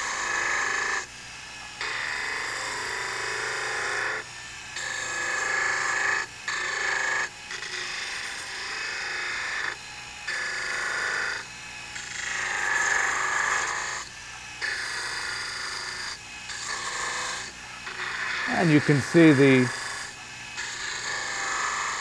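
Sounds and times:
gouge cutting wood on a lathe: 0:14.7 - 0:18.4.

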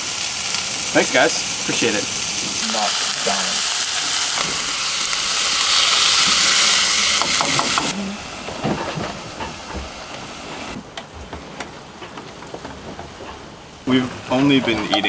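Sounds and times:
food sizzling in a frying pan: 0:00.0 - 0:08.6.

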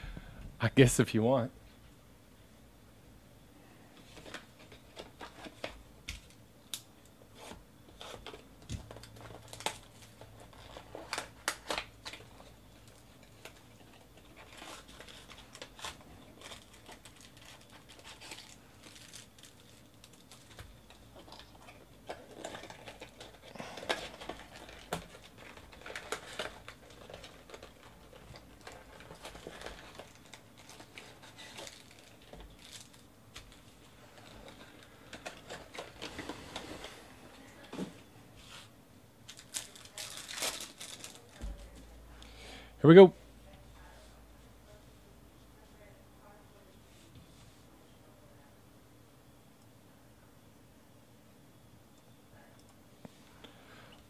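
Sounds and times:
card pack wrappers crinkling and tearing: 0:07.4 - 0:36.7, 0:39.2 - 0:41.7.

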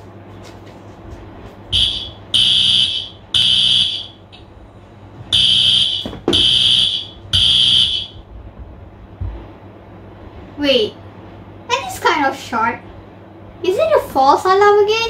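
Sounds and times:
fire alarm beeping: 0:01.7 - 0:04.2, 0:05.3 - 0:08.2.

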